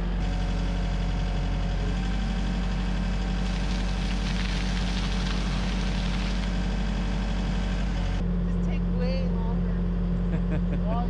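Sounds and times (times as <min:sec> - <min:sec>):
excavator diesel engine running: 0:00.0 - 0:11.0
soil spilling hiss: 0:03.3 - 0:07.5.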